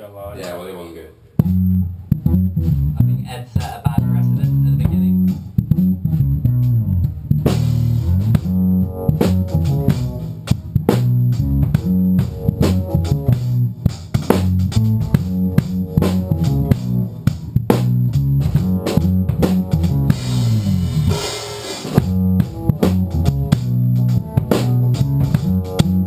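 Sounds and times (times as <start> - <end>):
drum kit beat: 1.3 - 26.0
funky electric bass line: 1.4 - 26.0
keyboard: 7.4 - 26.0.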